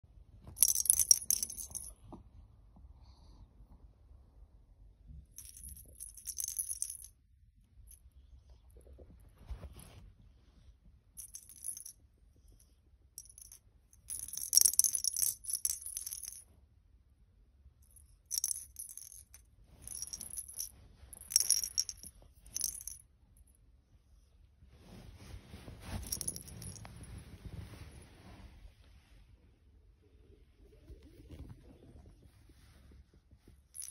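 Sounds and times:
jingle bell ball rattling: 0.4 - 2.0, 5.3 - 7.2, 11.2 - 12.0, 13.2 - 16.5, 17.8 - 23.1, 25.8 - 27.2.

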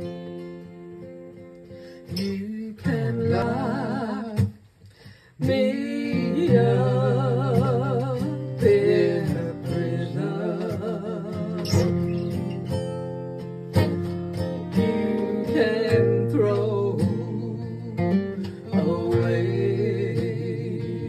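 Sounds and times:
acoustic guitar: 0.0 - 21.0
person singing with vibrato: 2.1 - 4.6, 5.2 - 12.5, 14.8 - 21.0.

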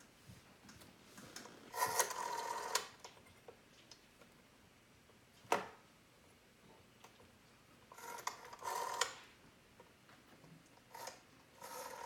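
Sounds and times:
rotary dial whirring back: 1.7 - 3.0, 7.9 - 9.2, 10.9 - 12.0.

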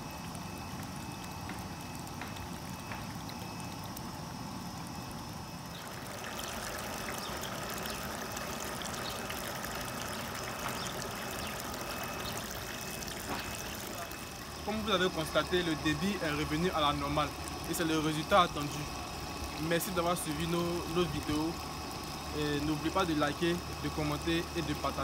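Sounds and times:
water pouring into a tank: 5.6 - 25.0.

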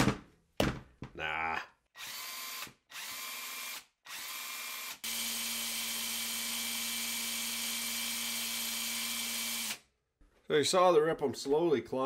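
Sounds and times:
impact wrench motor whine: 2.0 - 9.8
impact wrench trigger bursts: 2.0 - 9.8.

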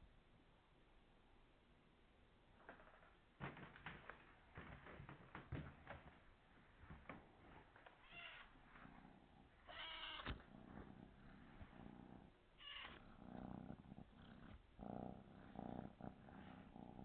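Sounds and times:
kitten meowing: 8.0 - 8.5, 9.7 - 10.4, 12.6 - 13.0
kitten purring: 8.2 - 17.0.

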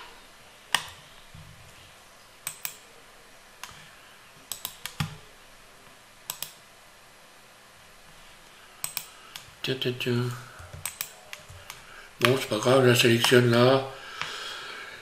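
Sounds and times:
faint room hiss: 0.0 - 15.0
mouse and keyboard clicks: 2.4 - 2.8, 3.6 - 3.8, 4.5 - 5.2, 6.3 - 6.6, 8.8 - 9.5, 10.6 - 12.4.

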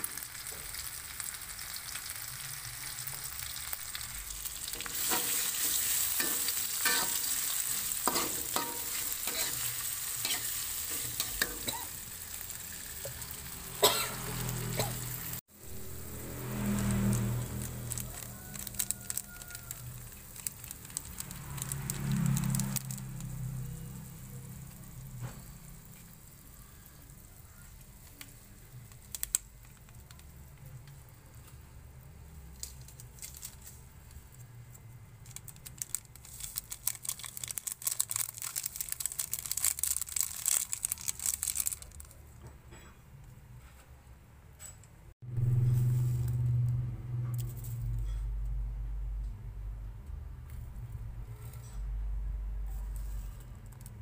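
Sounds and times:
paste sizzling in a wok: 0.0 - 29.4
low hum: 45.2 - 52.6.

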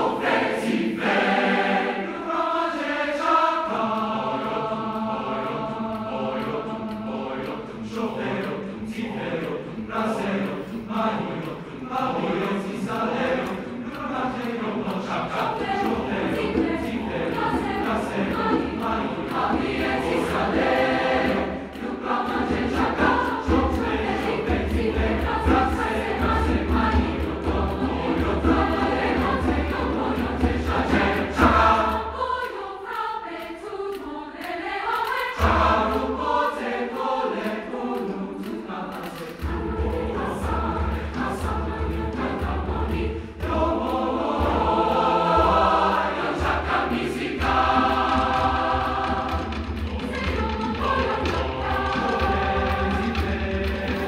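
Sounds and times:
massed choir singing: 0.0 - 54.0.

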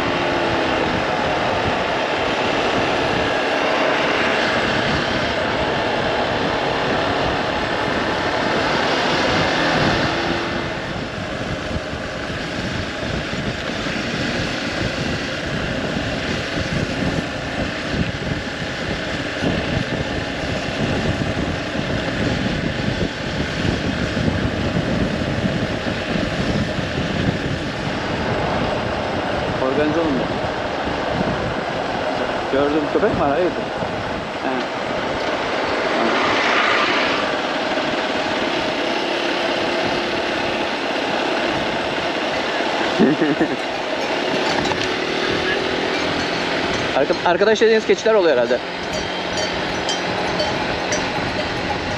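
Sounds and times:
motorcycle engine running: 0.0 - 32.6, 37.2 - 51.9
wind rush on microphone: 0.0 - 51.9.

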